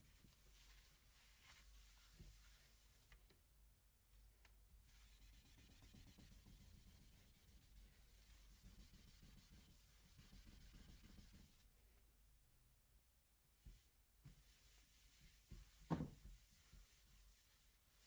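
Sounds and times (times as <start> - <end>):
wipe rubbing on smooth board: 0.2 - 3.0, 4.9 - 11.6, 13.6 - 18.0.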